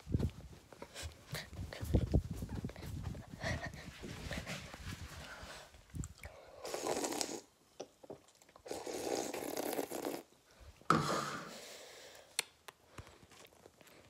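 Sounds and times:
sipping from a can: 6.0s - 7.5s, 8.6s - 10.3s.

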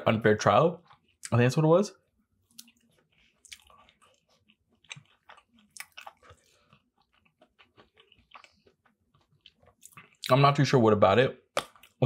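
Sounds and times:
person chewing food: 0.8s - 1.4s, 2.0s - 10.3s, 11.5s - 12.0s.

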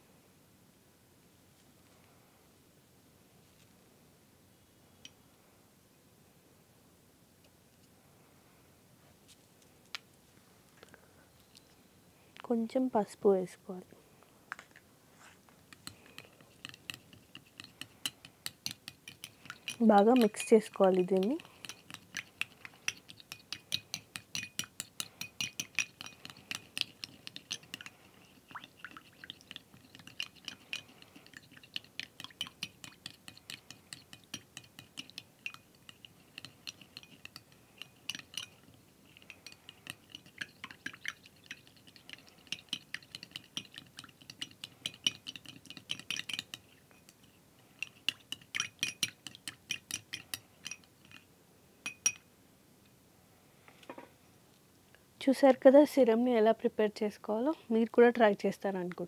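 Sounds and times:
spoon clinking against glass bowl: 15.7s - 47.2s, 47.8s - 51.2s, 51.8s - 52.3s.

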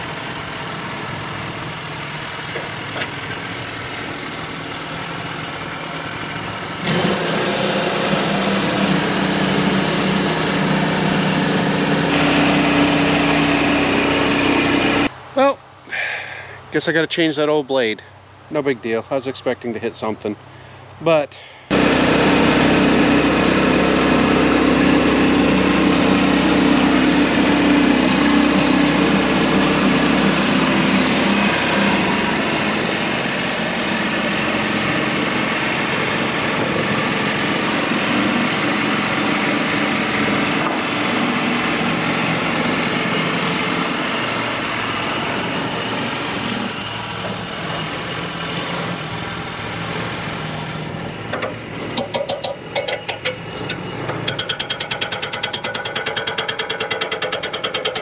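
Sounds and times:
sawmill engine running: 0.0s - 15.1s, 21.7s - 58.0s.

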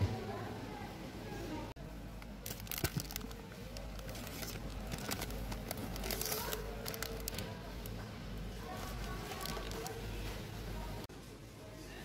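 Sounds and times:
plastic film crinkling: 2.2s - 8.0s, 8.6s - 10.1s.

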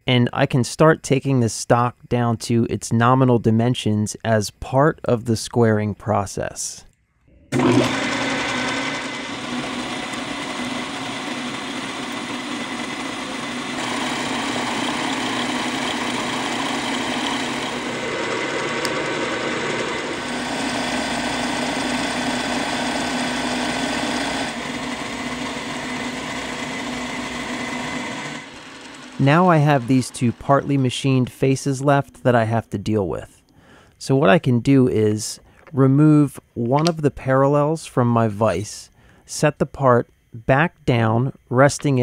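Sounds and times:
milling machine cutting steel: 7.6s - 32.2s.

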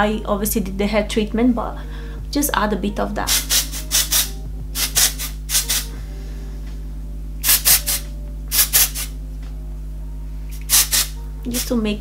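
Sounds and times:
low steady hum: 0.0s - 12.0s
hair spray spritzes: 3.3s - 6.0s, 7.4s - 9.1s, 10.5s - 11.7s.

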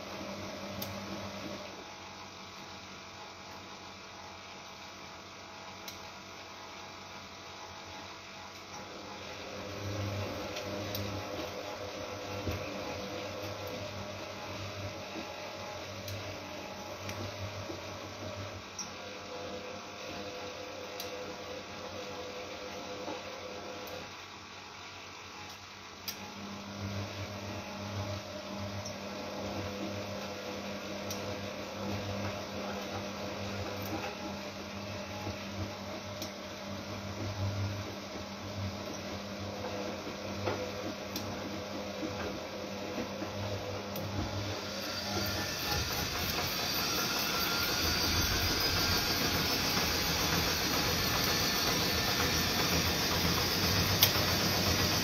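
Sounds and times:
washing machine drum turning: 37.1s - 55.0s.

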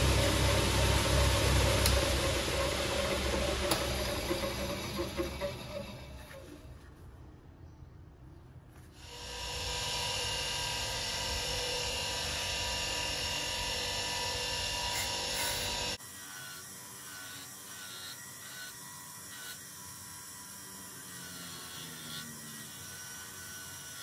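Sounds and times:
bench grinder whirring: 0.0s - 6.7s, 9.0s - 24.0s.

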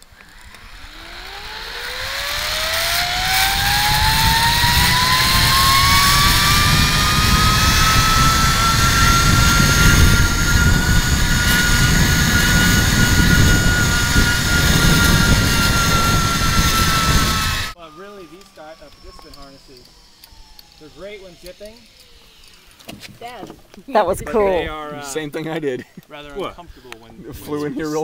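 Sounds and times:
zip line pulleys whining on cable: 0.0s - 25.2s
wind rumble on microphone: 3.1s - 17.7s.

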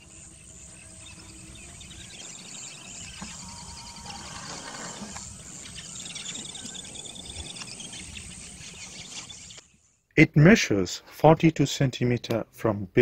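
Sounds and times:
insects trilling: 0.0s - 9.6s
birds chirping: 0.0s - 10.2s.

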